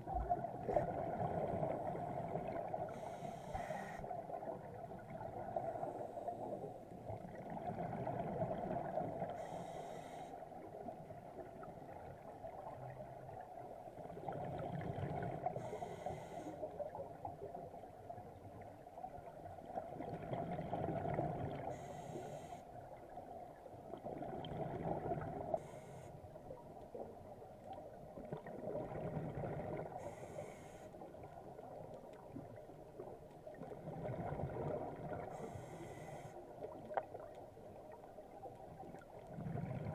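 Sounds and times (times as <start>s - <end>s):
diver breathing through regulator: 2.9s - 4.1s, 9.4s - 10.4s, 15.6s - 16.6s, 21.7s - 22.7s, 30.0s - 31.0s, 35.3s - 36.4s.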